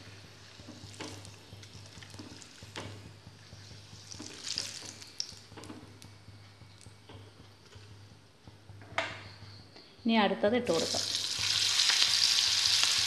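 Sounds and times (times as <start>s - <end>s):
hot oil sizzling: 0.0s - 9.4s, 10.1s - 13.0s
steady low hum: 0.0s - 11.8s
oil crackling: 0.3s - 7.0s, 10.7s - 13.0s.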